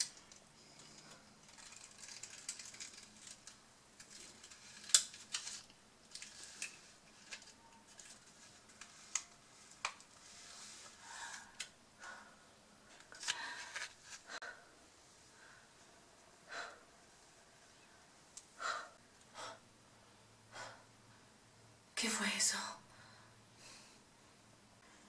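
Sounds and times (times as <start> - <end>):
rustling: 0.0 - 12.3
woman breathing and gasping: 10.8 - 12.6, 16.4 - 16.9, 18.6 - 19.6, 20.5 - 21.0.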